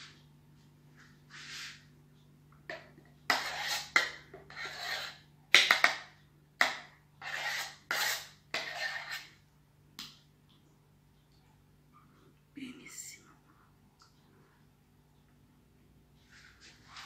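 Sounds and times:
metal spoon scraping saucepan: 0:02.7 - 0:05.2, 0:07.2 - 0:09.4.

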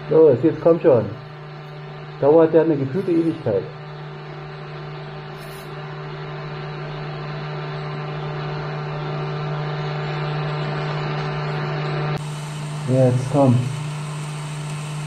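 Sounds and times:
welding arc buzzing over hiss: 0:12.2 - 0:15.0.

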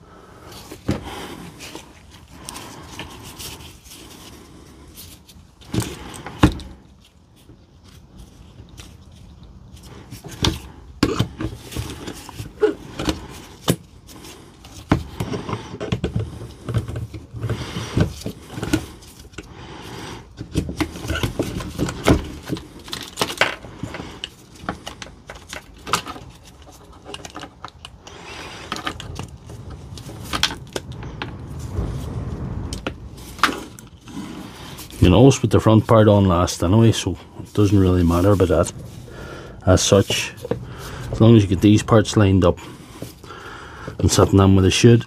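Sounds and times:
tool parts clicking and rattling: 0:20.2 - 0:31.0.

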